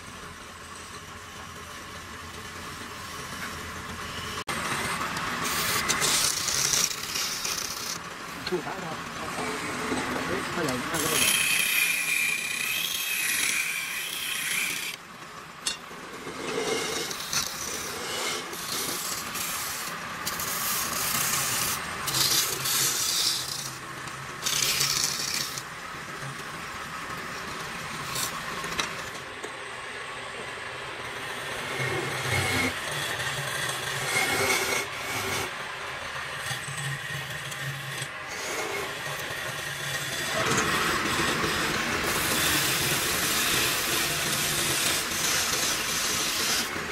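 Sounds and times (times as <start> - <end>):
lathe humming: 2.3 - 29.2, 30.4 - 46.9
turning tool scraping wood: 4.8 - 15.0, 16.1 - 23.8, 24.4 - 25.7, 32.0 - 35.6, 36.5 - 46.9.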